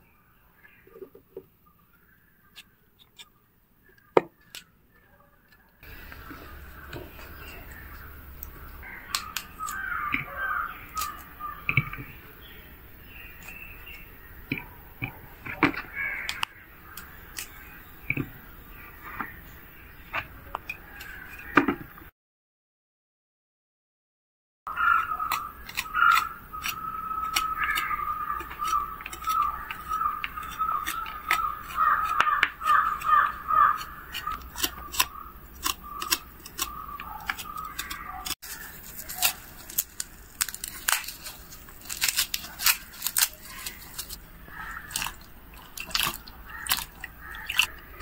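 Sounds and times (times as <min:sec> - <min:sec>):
knife cutting cauliflower: 0:24.8 - 0:47.7.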